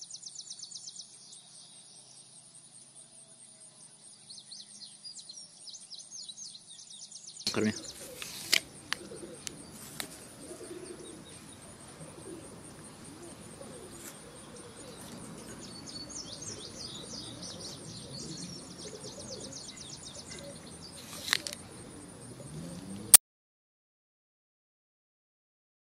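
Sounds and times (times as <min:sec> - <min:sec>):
birds chirping: 0:00.0 - 0:23.2
outdoor background noise: 0:00.0 - 0:23.2
sharp clicks: 0:07.5 - 0:10.2, 0:21.1 - 0:21.7.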